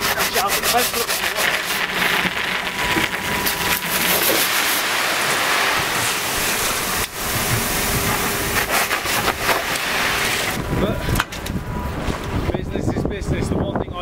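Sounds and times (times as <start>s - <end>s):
gravel pouring onto stones: 0.8s - 10.6s.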